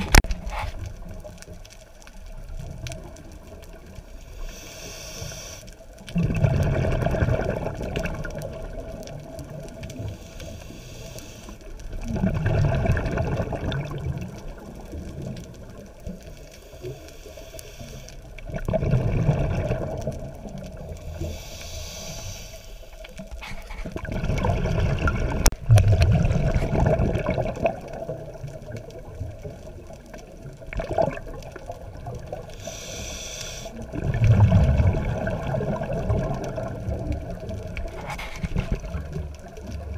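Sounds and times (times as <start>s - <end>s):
exhaled bubbles rumbling: 0.0s - 4.3s, 5.9s - 10.2s, 11.7s - 16.4s, 18.2s - 21.4s, 23.0s - 32.6s, 33.7s - 39.9s
regulator inhale hiss: 4.2s - 5.8s, 10.0s - 11.7s, 16.2s - 18.4s, 21.0s - 23.8s, 32.4s - 33.9s.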